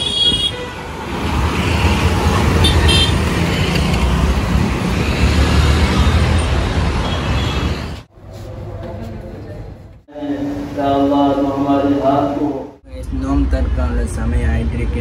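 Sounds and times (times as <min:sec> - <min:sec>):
vehicle horn toot: 0:00.0 - 0:00.9, 0:02.6 - 0:03.2, 0:07.0 - 0:07.8
passing cars and scooters rumble: 0:00.0 - 0:08.1.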